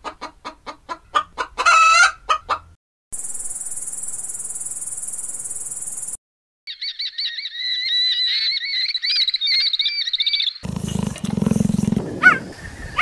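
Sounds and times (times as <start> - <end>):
hens clucking: 0.0 - 2.7.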